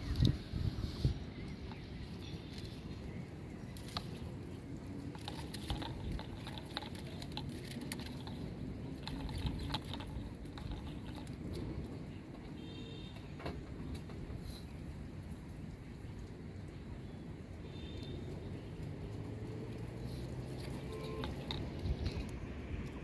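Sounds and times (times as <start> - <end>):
light clicks and taps: 18.0 - 23.0.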